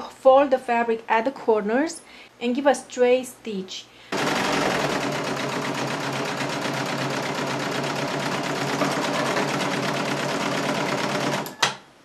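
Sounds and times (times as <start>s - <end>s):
overlock sewing machine stitching: 4.1s - 11.6s.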